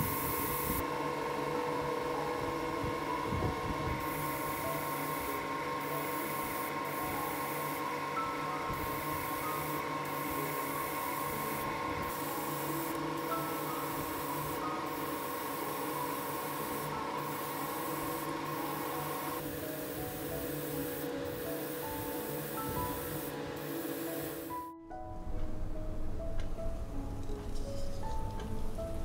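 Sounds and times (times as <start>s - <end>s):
airbrush spraying hiss: 0.0s - 0.8s, 3.9s - 24.7s
soft background music: 0.0s - 29.0s.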